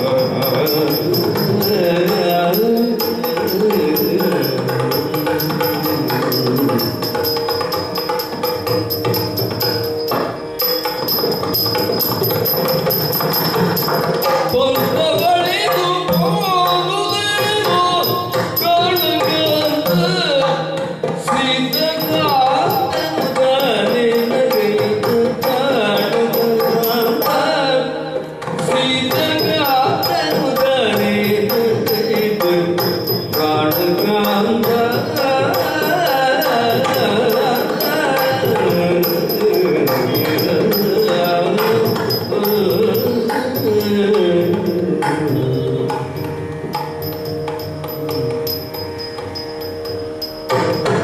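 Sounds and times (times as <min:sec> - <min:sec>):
man singing: 0:00.0 - 0:07.4, 0:14.2 - 0:46.3.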